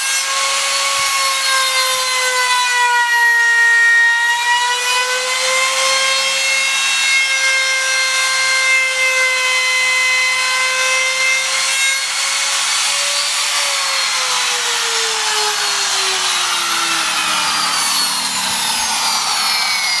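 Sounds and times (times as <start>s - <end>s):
router motor whining: 8.8s - 20.0s.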